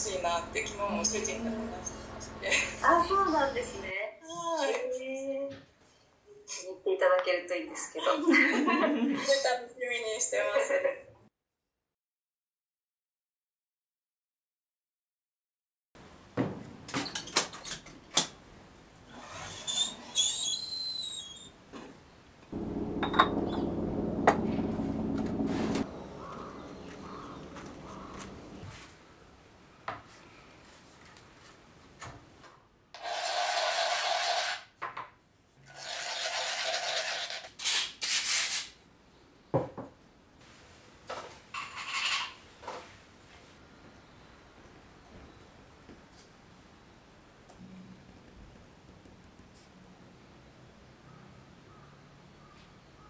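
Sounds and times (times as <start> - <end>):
ceramic cup grinding on abrasive board: 35.7 - 37.5.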